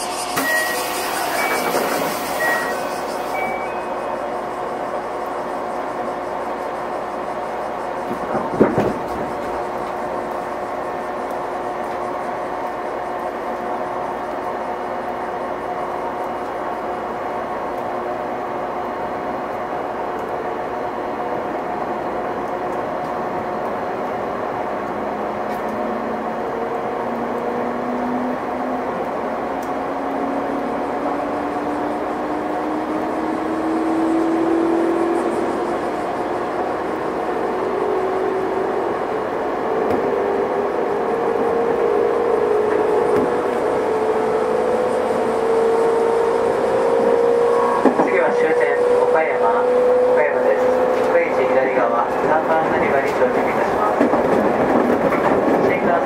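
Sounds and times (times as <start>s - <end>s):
train motor hum rising in pitch: 0.0s - 8.5s, 23.3s - 52.6s
electric train running: 0.0s - 56.0s.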